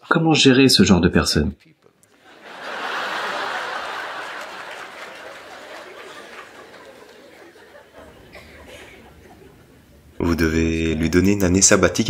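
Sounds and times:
audience laughing: 0:02.1 - 0:11.1.

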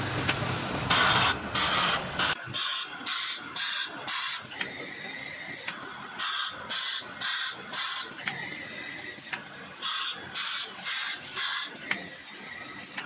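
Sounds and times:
laser welds hissing: 0:00.0 - 0:04.6
machine hum: 0:00.0 - 0:13.0.

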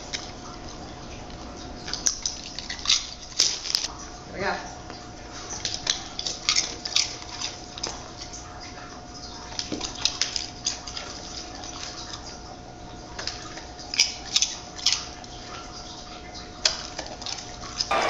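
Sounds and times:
dog crunching chips: 0:01.9 - 0:03.9, 0:05.5 - 0:08.4, 0:09.4 - 0:12.3, 0:13.2 - 0:15.1.

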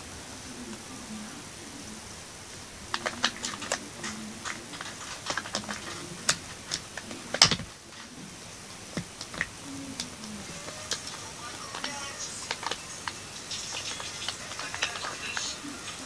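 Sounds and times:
plastic toy figures clicking: 0:02.9 - 0:07.7.

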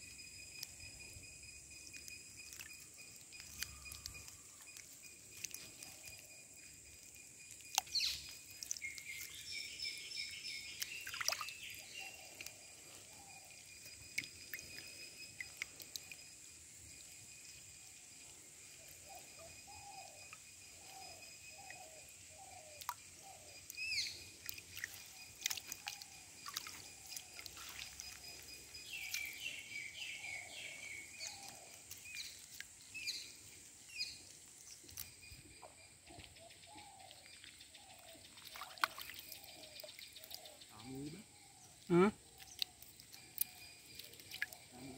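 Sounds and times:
high insect drone: 0:00.0 - 0:44.9
water splashes and drips: 0:01.9 - 0:12.5, 0:13.8 - 0:17.2, 0:22.6 - 0:29.5, 0:37.1 - 0:40.6, 0:42.3 - 0:44.9
birds chirping and calling: 0:20.8 - 0:32.4.

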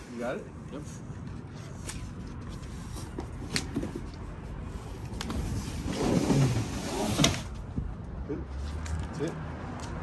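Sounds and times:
cardboard box scraping across floor: 0:05.3 - 0:07.5.

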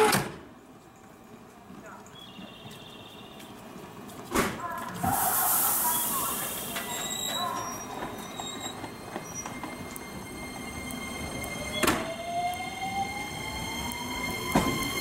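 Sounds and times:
train motors whining rising pitch: 0:06.6 - 0:15.0.

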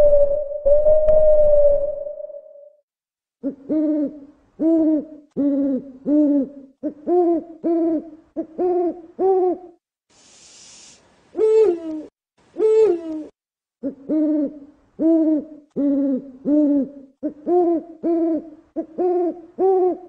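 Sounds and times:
owl hooting: 0:00.0 - 0:02.7, 0:03.4 - 0:09.7, 0:11.3 - 0:20.0
short hiss: 0:10.1 - 0:11.3.

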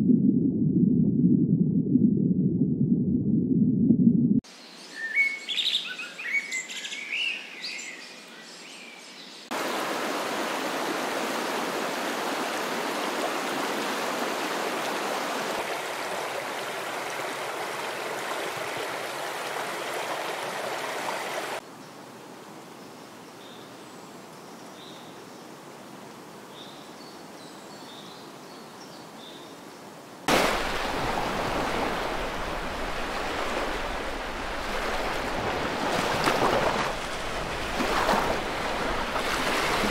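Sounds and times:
bird chirps: 0:04.7 - 0:09.4
flowing water rushing: 0:09.5 - 0:21.6, 0:30.3 - 0:39.9
waves breaking on shore: 0:09.5 - 0:21.6, 0:30.2 - 0:39.9.

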